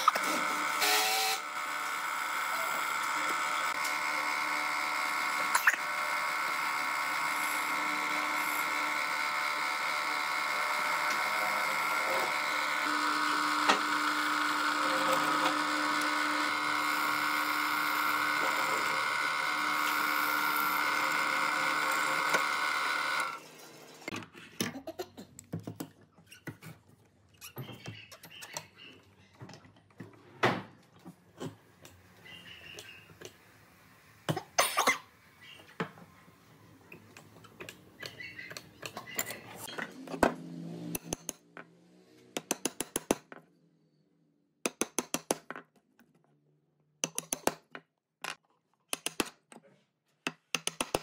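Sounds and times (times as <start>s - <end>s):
drill press boring into wood: 0.0s - 24.1s.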